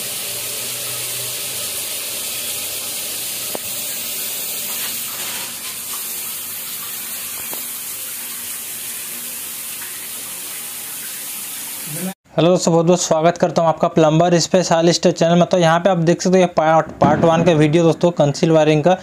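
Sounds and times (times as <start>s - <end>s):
shower water spraying on tiles: 0.0s - 12.2s.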